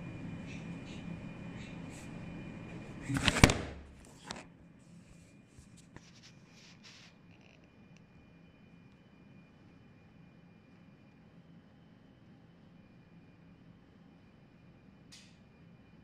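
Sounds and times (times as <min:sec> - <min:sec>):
small click: 0:15.1 - 0:15.4.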